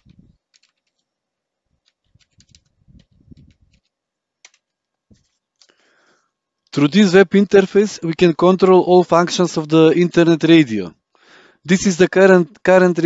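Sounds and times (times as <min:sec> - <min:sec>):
typing on computer keyboard: 0:00.0 - 0:01.0, 0:01.8 - 0:05.7.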